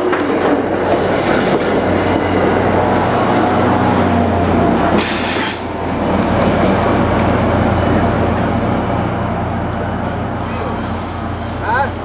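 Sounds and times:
diesel locomotive engine drone: 0.0 - 12.0
wheels rumbling on rail: 0.0 - 12.0.

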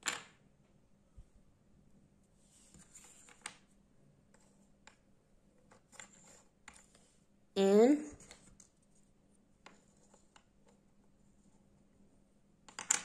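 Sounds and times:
wooden puzzle pieces clicking: 12.7 - 13.0.

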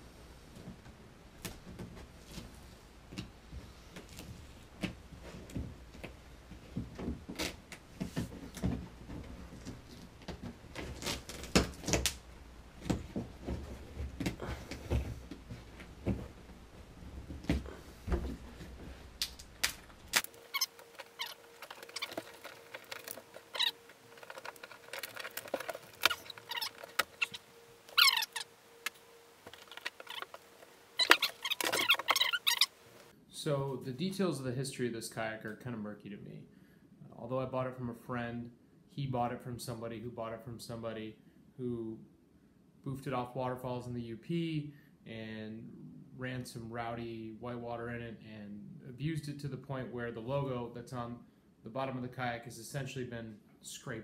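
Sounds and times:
faint steady hum: 0.0 - 54.0
short squeaky glides: 20.4 - 32.8
hands scraping plastic kayak hull: 20.5 - 32.8.

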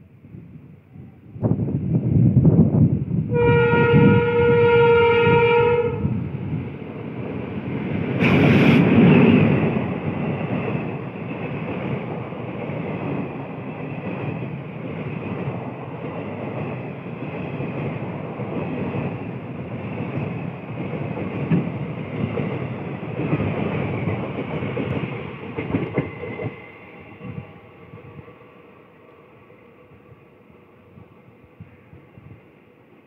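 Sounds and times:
train wheels clattering on rails: 6.8 - 27.5.

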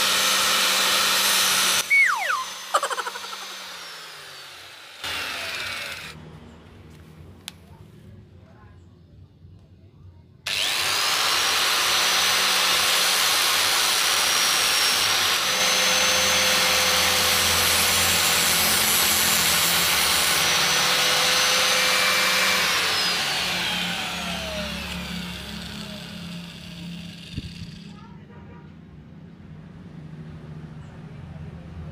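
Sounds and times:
angle grinder whining: 0.0 - 6.2, 10.5 - 28.0.

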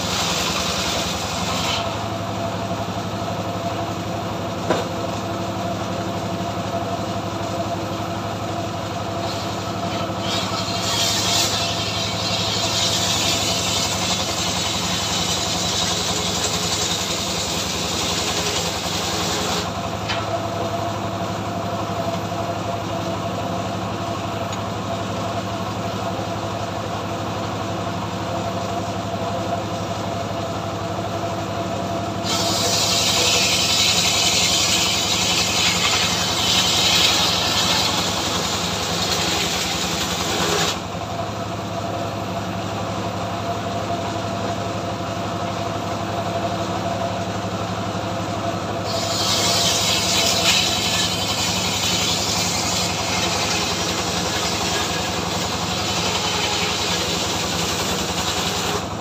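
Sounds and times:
saw blade rasping through log: 0.0 - 2.2, 9.2 - 20.2, 32.2 - 40.9, 48.8 - 58.9
sawmill engine running: 0.0 - 59.0.

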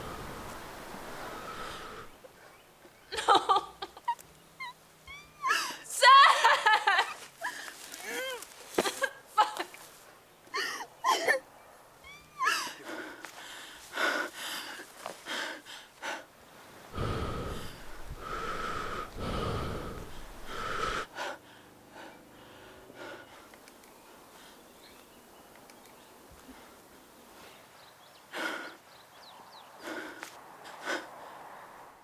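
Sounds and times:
heavy ragged breathing: 0.0 - 2.2, 12.6 - 23.6, 29.7 - 31.7
short whimpers: 4.6 - 5.8, 12.0 - 13.0
deep growling: 17.0 - 21.1.

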